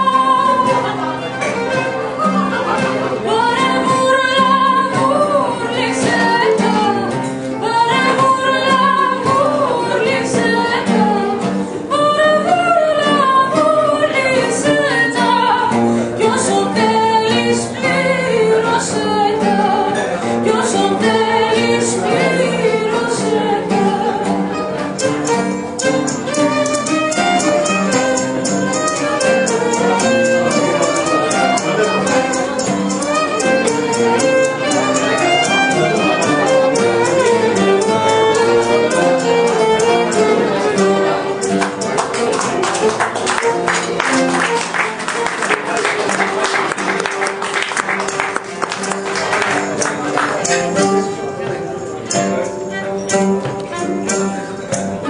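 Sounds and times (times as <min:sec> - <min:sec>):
woman singing: 0:00.0 - 0:01.2, 0:02.2 - 0:24.7
bowed string instrument: 0:00.0 - 0:55.0
plucked strings: 0:00.0 - 0:55.0.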